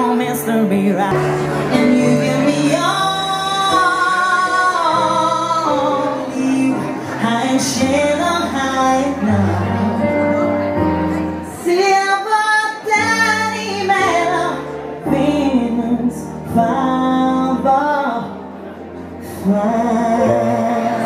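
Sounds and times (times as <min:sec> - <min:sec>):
woman singing a pop ballad: 0:00.0 - 0:10.6, 0:11.5 - 0:18.4, 0:19.2 - 0:20.9
stage piano through speakers: 0:00.0 - 0:21.0.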